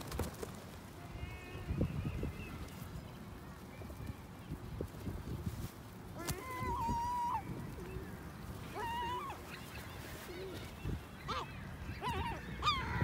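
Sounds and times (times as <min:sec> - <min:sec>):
gulls calling: 0:06.1 - 0:13.0.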